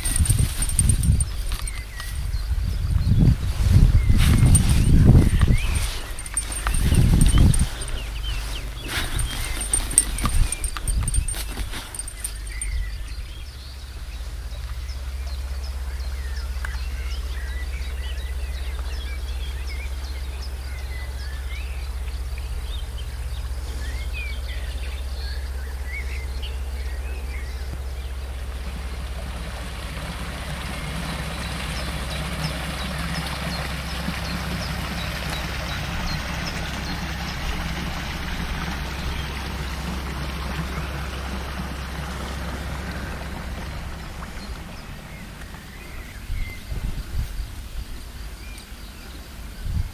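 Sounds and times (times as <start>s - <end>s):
brook rushing over stones: 0.0s - 12.9s, 28.6s - 48.2s
birds chirping and calling: 0.0s - 23.0s
steady low rumble: 0.0s - 49.9s.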